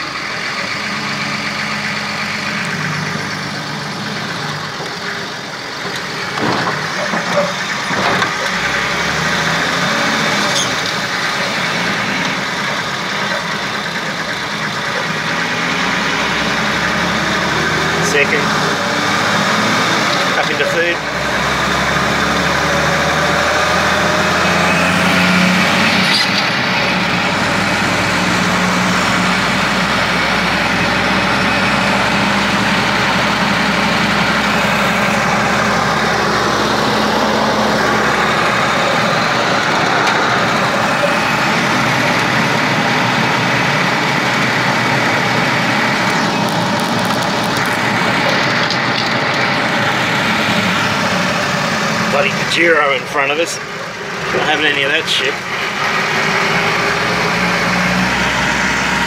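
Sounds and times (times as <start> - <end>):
car engine running: 0.0 - 59.0
road noise: 0.0 - 59.0.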